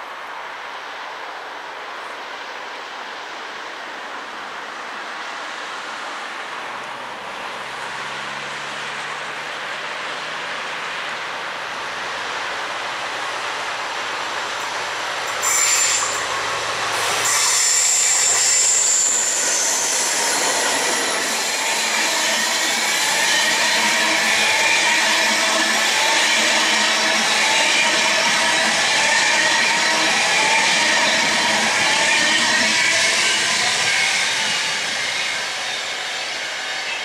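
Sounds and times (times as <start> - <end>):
diesel locomotive passing: 0.0 - 37.0
train wheel squeal: 14.6 - 37.0.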